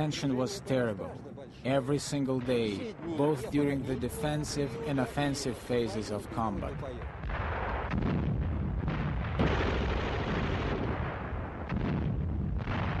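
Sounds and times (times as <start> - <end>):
artillery fire and explosions: 2.0 - 13.0.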